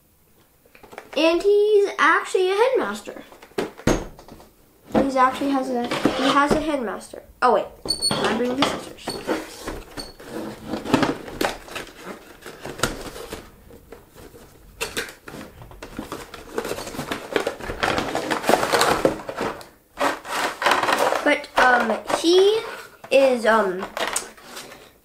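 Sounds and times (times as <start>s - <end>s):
packaging crinkling and rustling: 8.8s - 23.0s, 23.8s - 25.0s.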